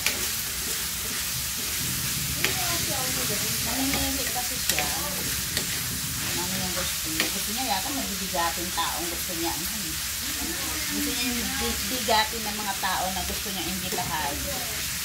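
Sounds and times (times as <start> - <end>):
spatula clicking on pan: 0.0 - 1.2, 7.2 - 7.4
meat sizzling in hot oil: 0.0 - 15.0.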